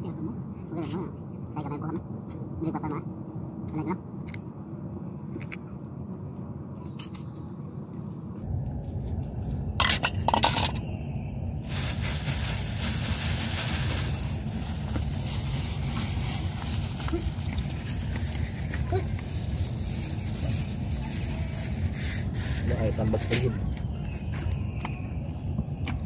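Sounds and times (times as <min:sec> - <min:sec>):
low rumble: 0:03.0 - 0:22.7.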